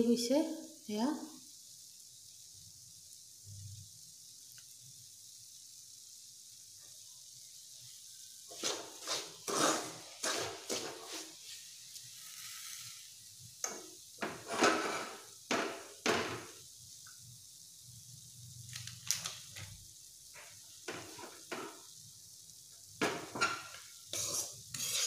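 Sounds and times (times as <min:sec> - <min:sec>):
spoon scraping thick mixture in pan: 0:08.5 - 0:12.1, 0:23.1 - 0:25.0.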